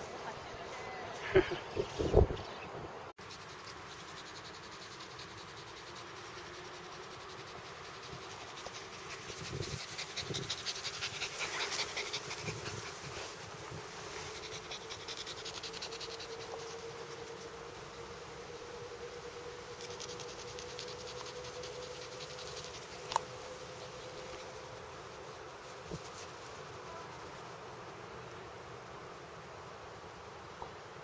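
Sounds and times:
dogs rustling through grass: 0:03.2 - 0:17.8, 0:19.7 - 0:27.7
dogs panting: 0:03.3 - 0:17.1, 0:19.8 - 0:24.7.

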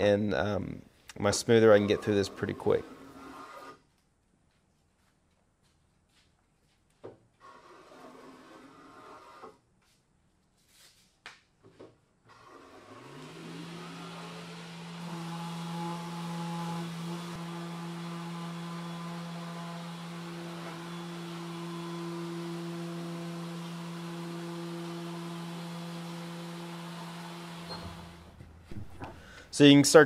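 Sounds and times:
electric motor humming: 0:12.3 - 0:28.4.

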